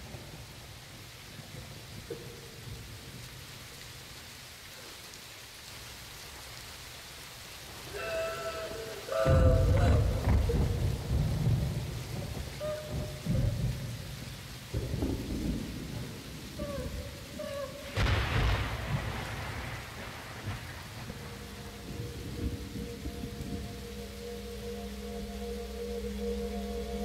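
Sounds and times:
rain noise: 0:00.0 - 0:27.0
rumbling thunder: 0:09.2 - 0:27.0
drone of held tones: 0:21.1 - 0:27.0
short wavering tones: 0:21.1 - 0:27.0.

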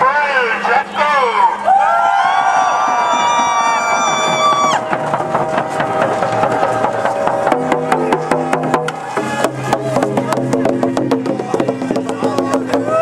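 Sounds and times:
frame drums beaten in rhythm: 0:02.9 - 0:13.0.

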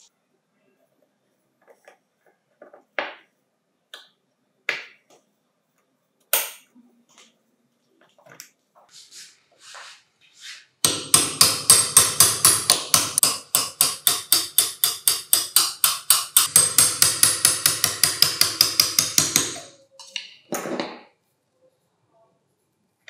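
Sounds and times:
hammer tapping pin punch: 0:10.8 - 0:19.7.

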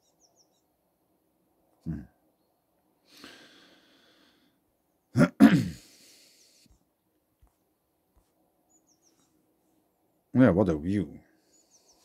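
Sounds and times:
faint breath in: 0:03.0 - 0:04.6
man clearing his throat: 0:05.2 - 0:05.9.

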